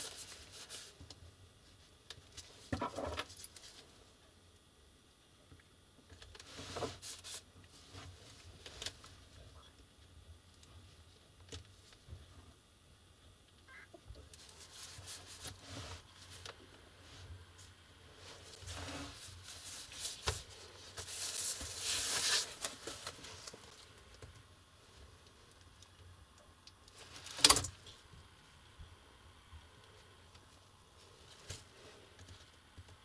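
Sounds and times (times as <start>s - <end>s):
packing foam rustling: 18.1s - 24.0s.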